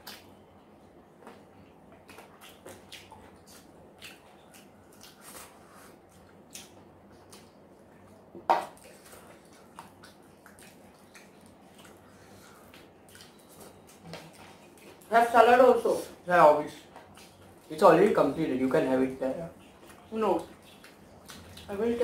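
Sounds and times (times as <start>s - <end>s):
wet chewing smacks: 1.2s - 15.1s, 16.9s - 17.8s, 19.6s - 22.0s.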